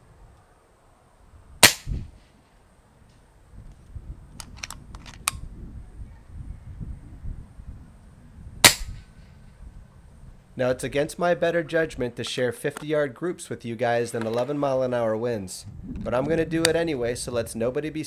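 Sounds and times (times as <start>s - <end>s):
air rifle shot crack: 1.6s - 2.3s, 8.6s - 9.3s
sharp clicks: 4.4s - 5.4s.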